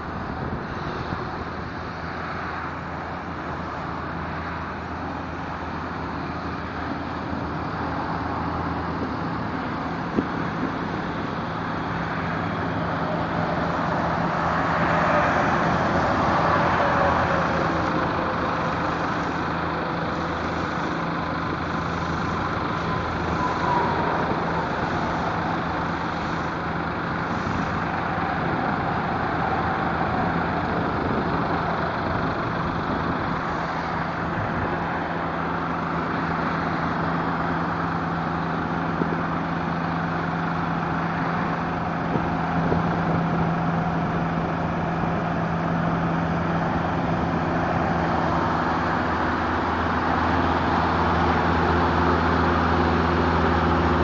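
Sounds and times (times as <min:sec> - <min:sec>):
engine and pump running: 0:00.0 - 0:54.0
road traffic: 0:00.0 - 0:54.0
vehicles passing: 0:00.0 - 0:54.0
hiss of slurry spraying: 0:13.7 - 0:30.6.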